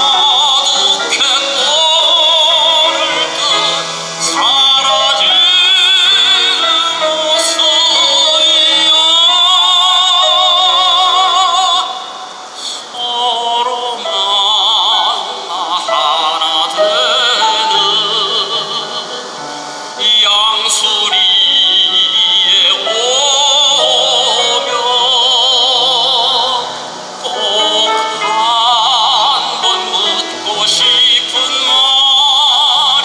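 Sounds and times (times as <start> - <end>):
grand piano: 0.0 - 33.0
man singing operatically: 0.0 - 33.0.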